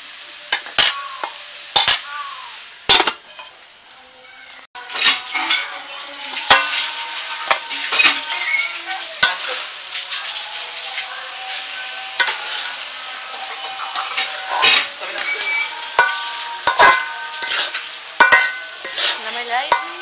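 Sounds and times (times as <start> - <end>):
onions sizzling in pan: 0.0 - 20.0
metal spatula clanking on pan: 0.5 - 2.1, 2.9 - 3.6, 4.8 - 5.8, 6.4 - 8.4, 9.2 - 9.6, 12.2 - 12.7, 13.4 - 20.0
spatula scraping pan: 0.5 - 2.1, 4.8 - 20.0.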